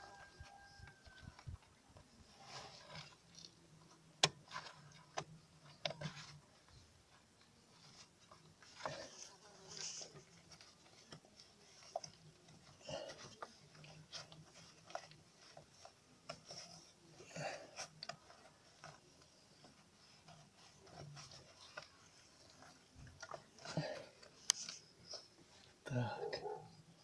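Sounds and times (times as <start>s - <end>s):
rustling of hand with parts: 0.0s - 27.0s.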